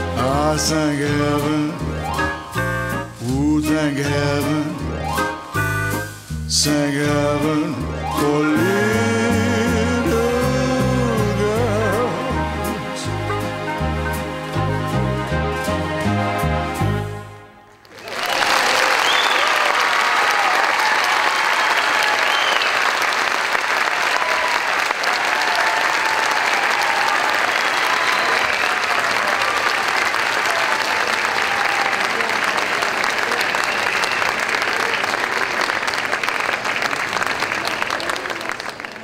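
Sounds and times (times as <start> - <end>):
audience applauding: 17.7 - 39.0.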